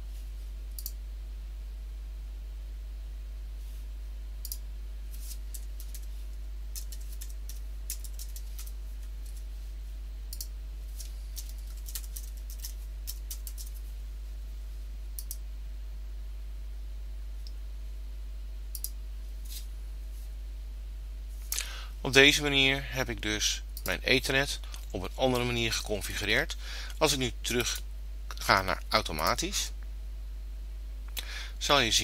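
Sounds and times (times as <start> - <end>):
low electrical hum: 0.0 - 32.0
computer keyboard keystrokes: 5.3 - 6.1, 6.7 - 9.4, 10.3 - 13.8.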